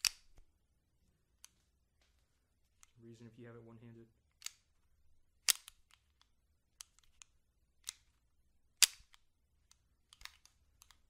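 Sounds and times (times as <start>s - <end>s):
pistol action clicks and snaps: 0.0s - 0.5s, 4.3s - 4.7s, 5.4s - 8.2s, 8.8s - 11.0s.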